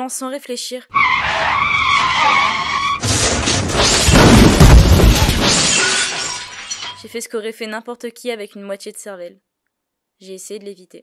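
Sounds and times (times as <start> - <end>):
tyre squeal: 0.9 - 7.0
vehicle crash with deep rumble: 1.0 - 7.0.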